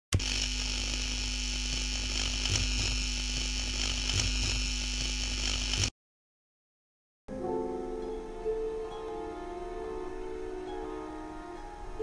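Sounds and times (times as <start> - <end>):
electrical hum and buzz: 0.2 - 5.9.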